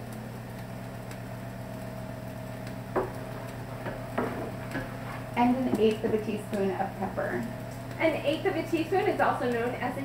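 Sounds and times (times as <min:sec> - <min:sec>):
steady low hum: 0:00.0 - 0:10.0
light knocks on pot: 0:02.9 - 0:03.2, 0:03.8 - 0:04.8
wooden spoon stirring soup: 0:02.9 - 0:06.5.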